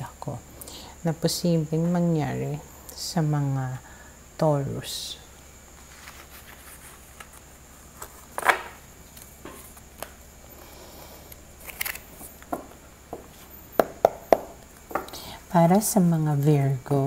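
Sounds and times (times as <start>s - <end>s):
cards sliding across cloth: 5.8s - 8.2s
deck tapped square: 13.8s - 15.1s.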